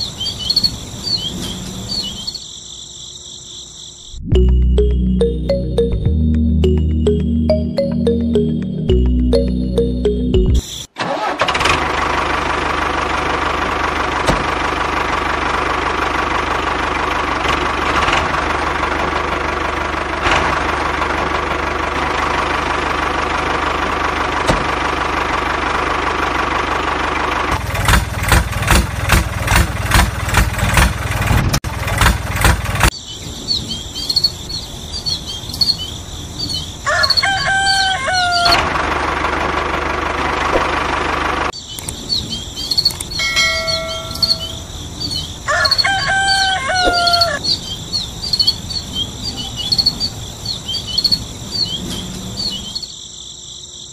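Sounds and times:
small birds chirping: 0:00.0 - 0:04.9, 0:32.9 - 0:38.4, 0:41.5 - 0:53.9
tractor engine chugging: 0:06.6 - 0:33.0, 0:37.8 - 0:41.6, 0:42.9 - 0:47.4
rooster crowing: 0:36.8 - 0:38.7, 0:45.4 - 0:47.4.

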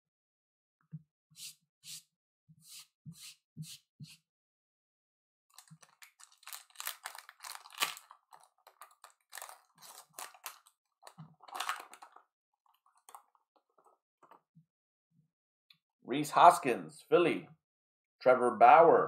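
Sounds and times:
foil wrapper crinkling and tearing: 0:05.5 - 0:12.2.

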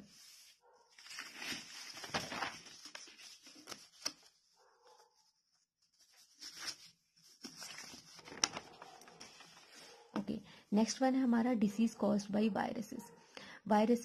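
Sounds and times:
notebook pages rustling: 0:00.1 - 0:10.1.

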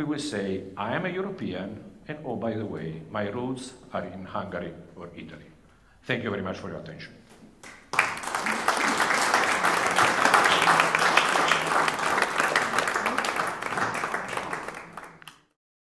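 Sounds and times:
audience applauding: 0:07.6 - 0:15.5.

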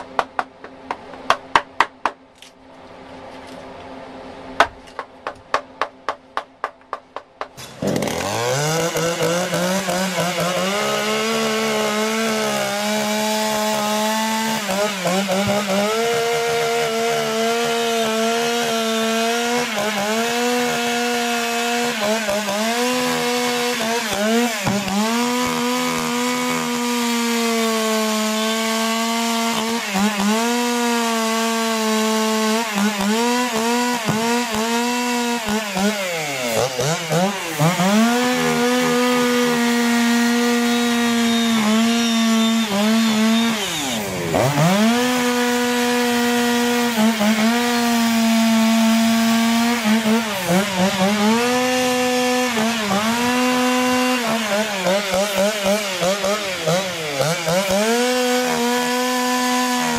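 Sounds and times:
chainsaw cutting log: 0:04.6 - 0:59.9.

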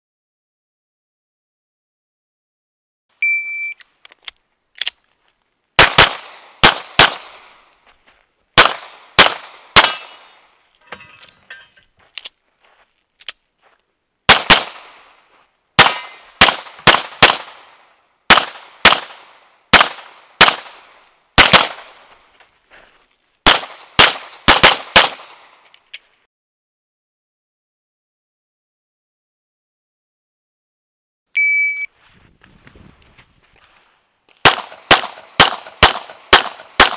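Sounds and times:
electronic timer beep: 0:03.2 - 0:03.8, 0:31.4 - 0:31.9
pistol shots: 0:05.8 - 0:07.6, 0:08.6 - 0:10.4, 0:14.3 - 0:15.1, 0:15.8 - 0:22.1, 0:23.4 - 0:25.5, 0:34.4 - 0:36.9.

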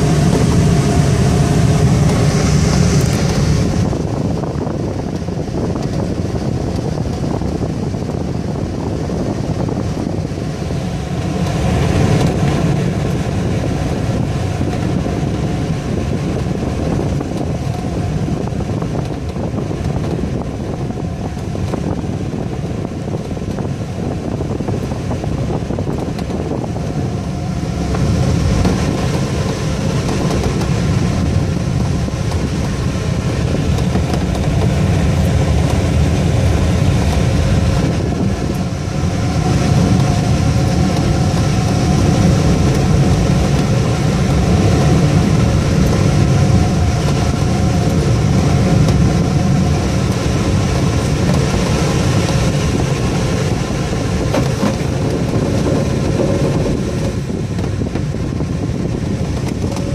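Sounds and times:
airflow rushing over canopy: 0:00.0 - 0:59.9.

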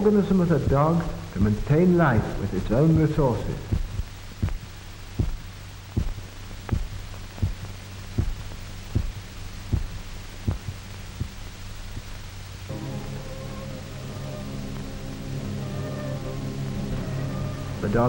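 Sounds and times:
low hum: 0:00.0 - 0:18.0
music: 0:00.0 - 0:18.0
heartbeat thumps: 0:00.6 - 0:12.4.

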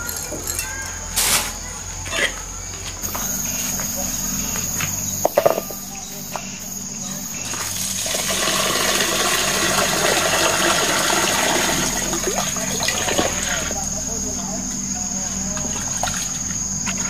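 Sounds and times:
insect drone: 0:00.0 - 0:17.0
water pouring into metal pot: 0:07.5 - 0:13.7.

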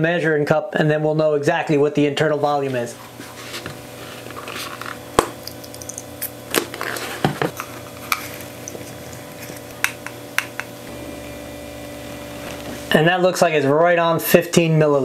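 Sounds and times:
water pouring into plastic cup: 0:05.3 - 0:06.4.

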